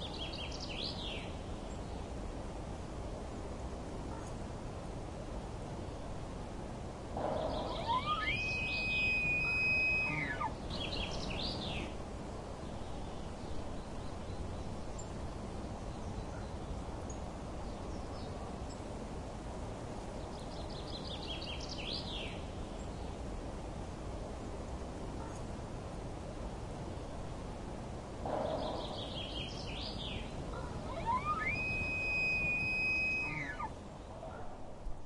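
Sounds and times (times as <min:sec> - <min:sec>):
outdoor background noise: 0:00.0 - 0:35.0
birds chirping: 0:07.2 - 0:12.0, 0:28.3 - 0:34.4
high whistled note: 0:07.7 - 0:10.5, 0:30.9 - 0:33.7.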